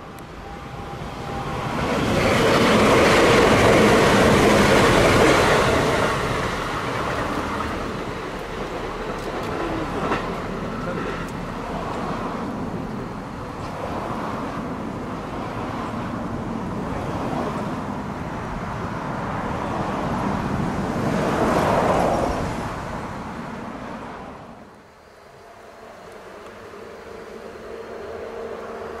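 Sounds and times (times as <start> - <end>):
electric train rumbling: 0.0 - 29.0
rushing noise: 0.0 - 29.0
wheels clicking over rail joints: 2.0 - 13.8.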